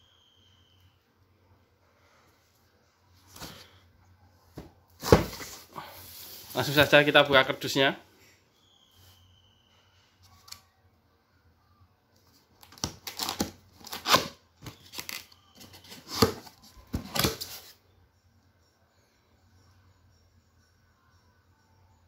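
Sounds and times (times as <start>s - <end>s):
cardboard tearing and scraping: 12.7s - 17.6s.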